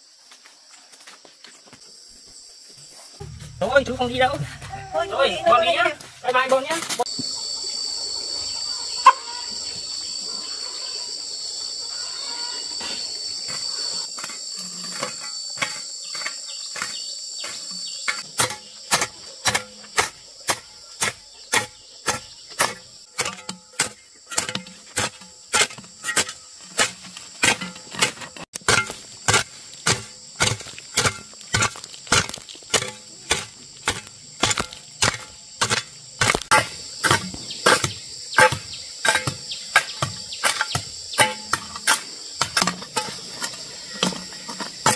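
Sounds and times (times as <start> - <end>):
insects buzzing: 0.0 - 44.9
sharp chopping strikes: 3.2 - 4.7, 28.6 - 42.6.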